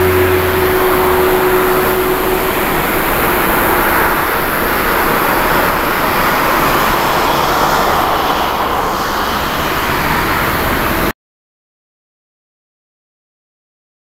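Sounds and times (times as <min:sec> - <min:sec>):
jet engines roaring at takeoff: 0:00.0 - 0:11.1.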